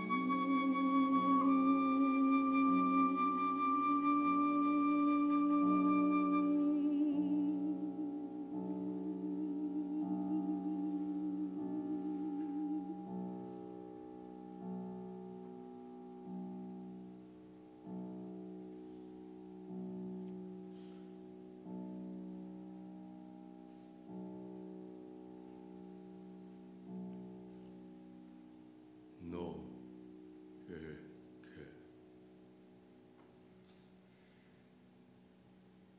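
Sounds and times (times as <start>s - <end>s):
flute low note with vibrato: 0.0s - 13.3s
grand piano soft chords: 0.0s - 35.9s.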